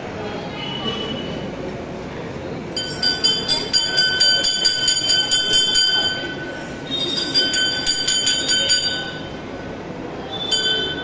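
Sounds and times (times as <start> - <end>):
temple bells ringing rapidly: 2.8 - 9.4, 10.4 - 11.0.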